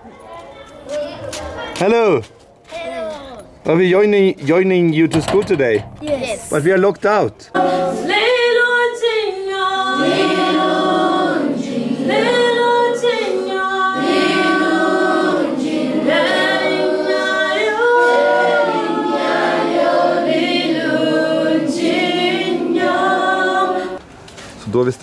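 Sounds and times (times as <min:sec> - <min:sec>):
children singing unaccompanied: 0:07.6 - 0:24.0.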